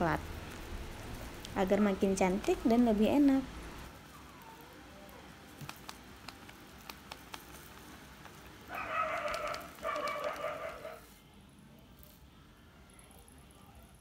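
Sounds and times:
animal crying: 0:08.7 - 0:11.0.

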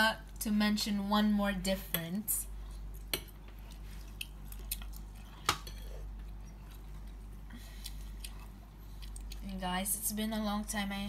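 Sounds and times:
low steady hum: 0:00.0 - 0:11.0
chewing: 0:02.8 - 0:09.5.

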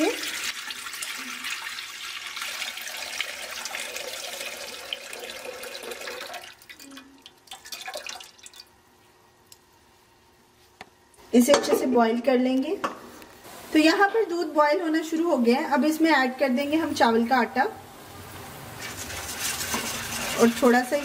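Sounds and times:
drips and splashes: 0:00.0 - 0:08.8
milk pouring into a metal pot: 0:00.0 - 0:08.8.

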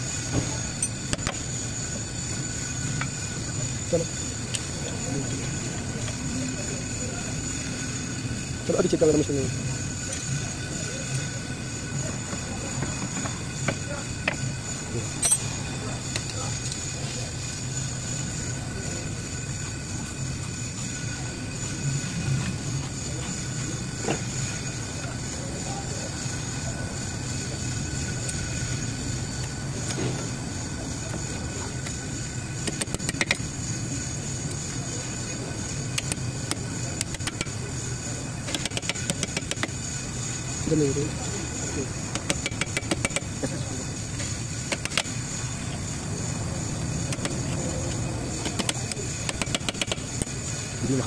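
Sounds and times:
background machinery rumble: 0:00.0 - 0:51.0
metal tool clicking on brake caliper: 0:15.2 - 0:15.5, 0:35.9 - 0:37.5, 0:38.4 - 0:39.7, 0:42.1 - 0:43.3, 0:48.4 - 0:50.4.

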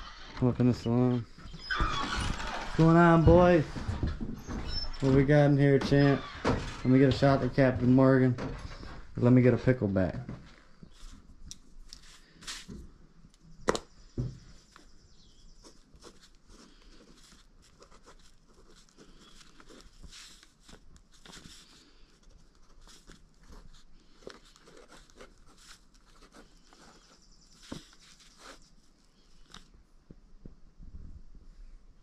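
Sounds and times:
pen scratching on paper: 0:15.6 - 0:20.7, 0:21.3 - 0:28.7.

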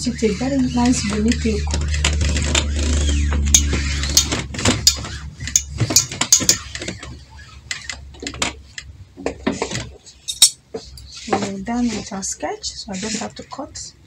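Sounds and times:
sewing tools clicking and knocking: 0:03.5 - 0:07.1, 0:07.7 - 0:11.6.

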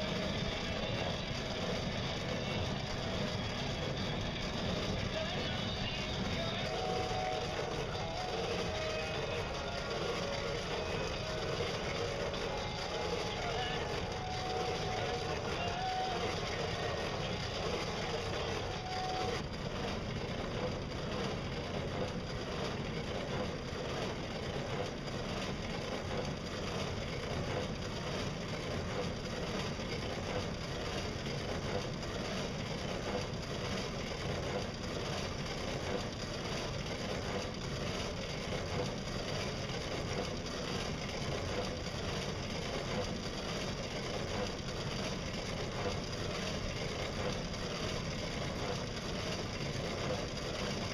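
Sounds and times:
faint high whine: 0:00.0 - 0:21.4
boat drive mechanical running: 0:00.0 - 0:50.9.

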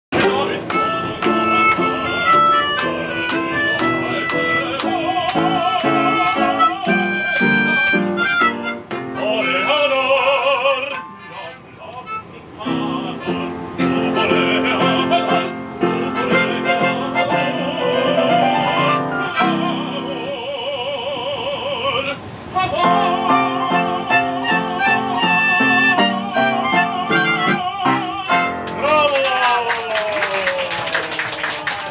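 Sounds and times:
operatic voice singing: 0:00.1 - 0:01.4, 0:04.7 - 0:07.3, 0:09.2 - 0:29.0
piano accompaniment: 0:00.1 - 0:20.6, 0:22.6 - 0:29.2.

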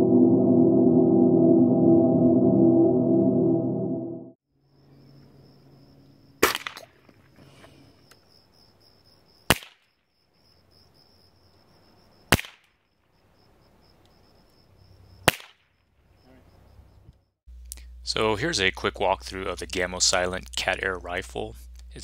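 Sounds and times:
air rifle cracks: 0:06.4 - 0:07.0, 0:09.5 - 0:09.8, 0:12.3 - 0:12.7.

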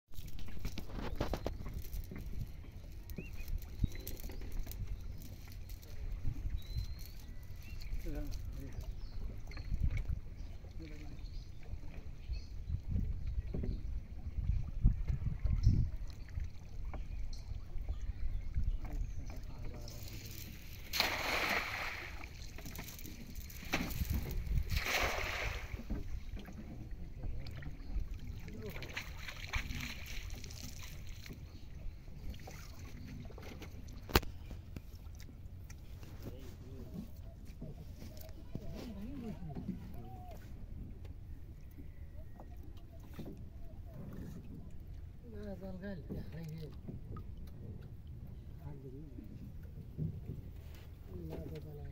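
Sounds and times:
wind rumbling on microphone: 0:00.2 - 0:32.4
cast net splashing on water: 0:20.0 - 0:26.0.

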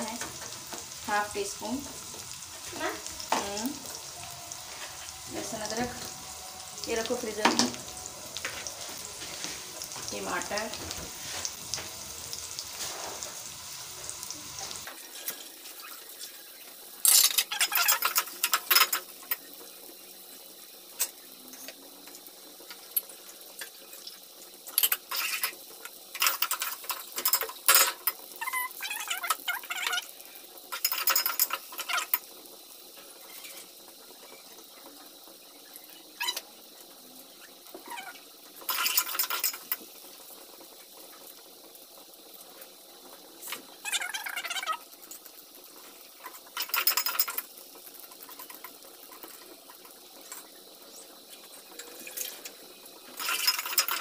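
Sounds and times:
onions sizzling in oil: 0:00.0 - 0:54.0.

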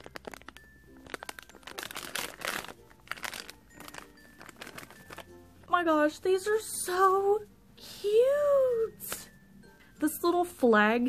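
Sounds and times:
plastic bag crinkling: 0:00.0 - 0:05.5.

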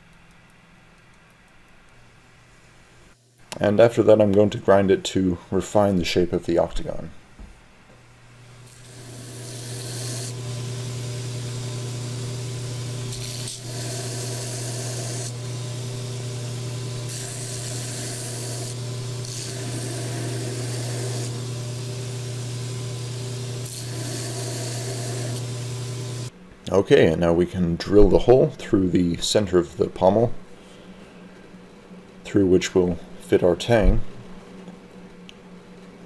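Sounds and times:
belt sander motor hum: 0:08.5 - 0:26.3
steel grinding on abrasive belt: 0:08.6 - 0:26.3.

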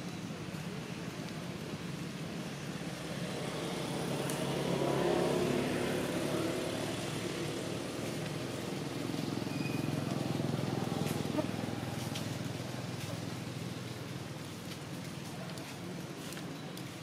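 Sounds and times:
vehicle engine passing: 0:02.8 - 0:13.6.

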